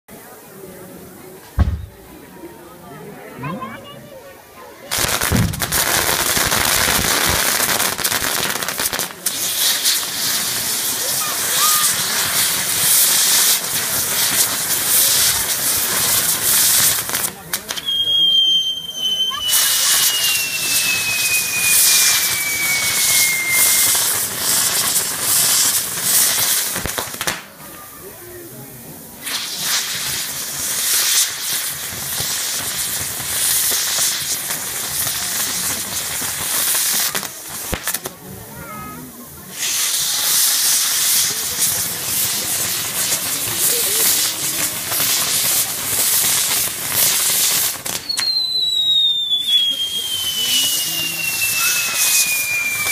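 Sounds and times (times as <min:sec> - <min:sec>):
hissing spark fountains: 0:00.1 - 0:52.9
firework bangs: 0:01.4 - 0:02.3, 0:04.9 - 0:27.8, 0:29.2 - 0:52.9
falling whistle: 0:17.8 - 0:24.1, 0:48.0 - 0:52.9.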